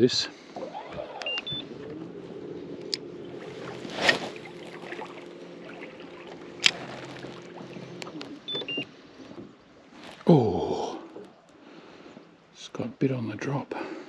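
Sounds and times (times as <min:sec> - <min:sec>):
electric motor humming: 0:01.2 - 0:08.5
short electronic beeps: 0:01.3 - 0:01.7, 0:08.5 - 0:08.9.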